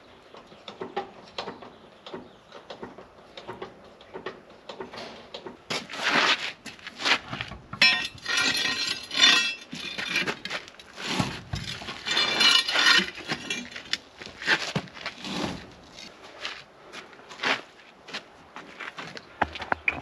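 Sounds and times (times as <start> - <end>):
metal tools clinking on wheel hub: 7.8 - 14.1.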